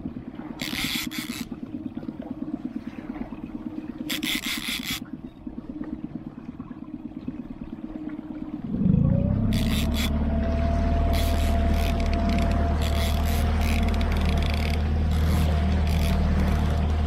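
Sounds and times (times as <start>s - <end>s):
outboard motor running: 8.2s - 17.0s.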